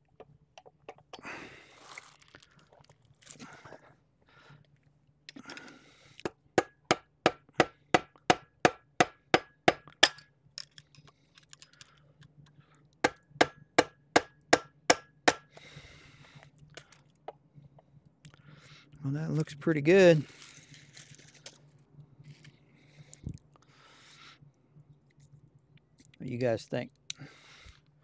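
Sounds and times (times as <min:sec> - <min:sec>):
hammer striking metal: 0:06.6 - 0:10.2, 0:13.0 - 0:15.5.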